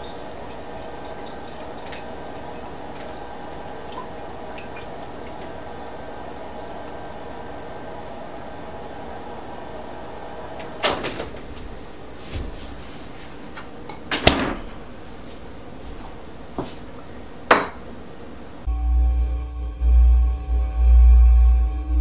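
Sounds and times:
deep droning music: 0.0 - 10.9, 18.6 - 22.0
low hum: 0.0 - 13.7, 18.6 - 22.0
refrigerator door shutting: 10.6 - 11.8, 14.1 - 14.8.

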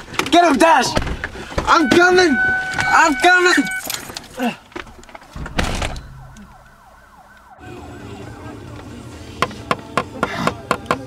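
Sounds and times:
police siren yelping: 1.7 - 4.1, 6.0 - 8.8.

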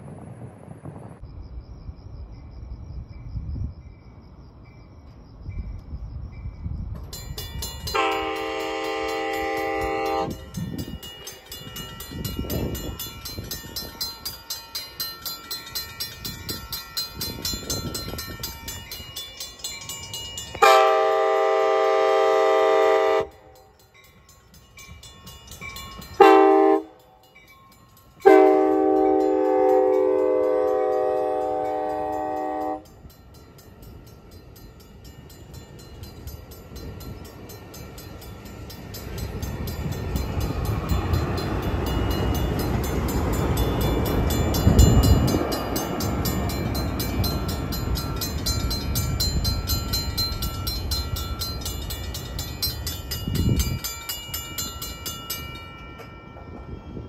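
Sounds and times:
train rumbling past: 0.0 - 57.0
railroad crossing bell ringing: 2.4 - 57.0
train horn blasts: 7.9 - 10.6, 20.6 - 23.6, 26.2 - 27.0, 28.2 - 33.0.

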